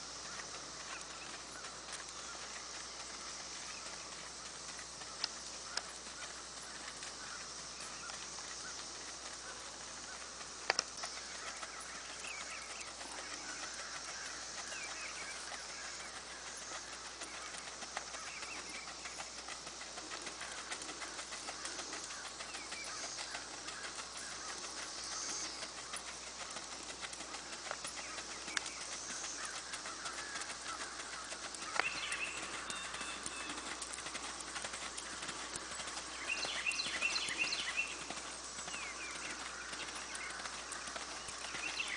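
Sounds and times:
birds chirping: 0:00.0 - 0:41.9
steady background hiss: 0:00.0 - 0:41.9.

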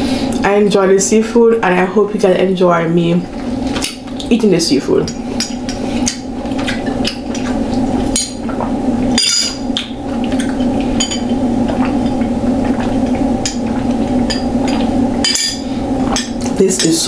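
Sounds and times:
low hum: 0:00.0 - 0:17.0
person drinking: 0:10.1 - 0:16.5.

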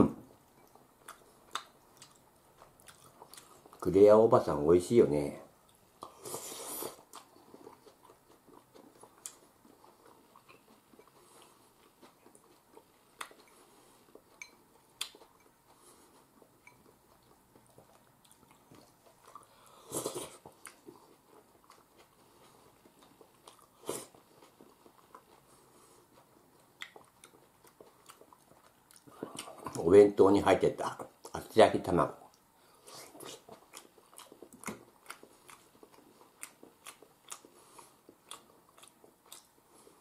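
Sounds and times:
person chewing: 0:00.5 - 0:03.8, 0:05.6 - 0:29.9, 0:32.2 - 0:40.0.

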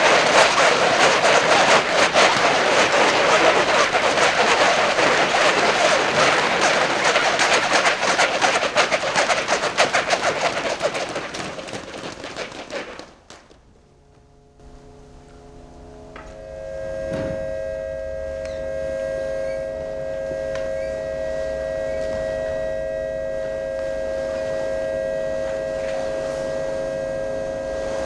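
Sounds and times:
crinkly sheet rustling: 0:00.0 - 0:13.6
faint humming tones: 0:00.0 - 0:28.0.

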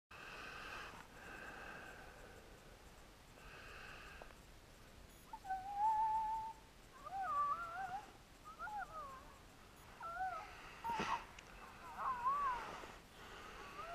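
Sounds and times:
predator call animal cries: 0:11.8 - 0:12.7.

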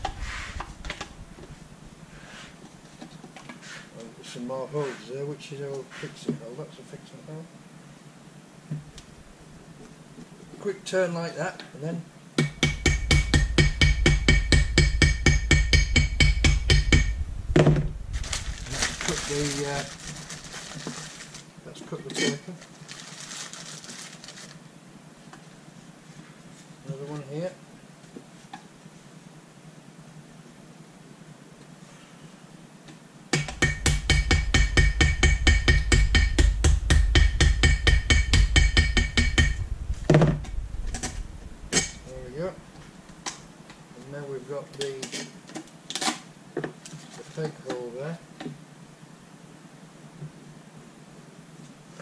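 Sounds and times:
hammer tapping on metal: 0:12.4 - 0:17.2, 0:33.4 - 0:39.6.

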